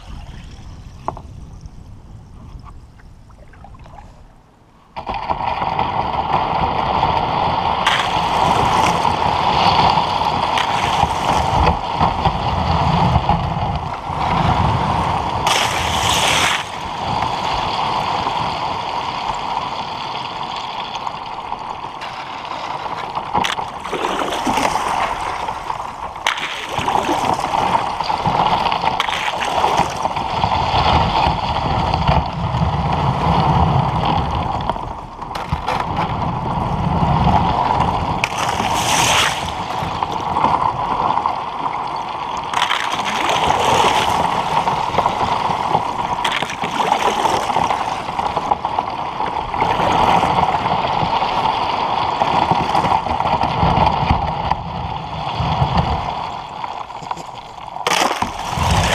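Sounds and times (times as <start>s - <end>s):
water sloshing: 0.0s - 4.6s, 23.0s - 30.2s
ice crackling against hull: 0.0s - 58.9s.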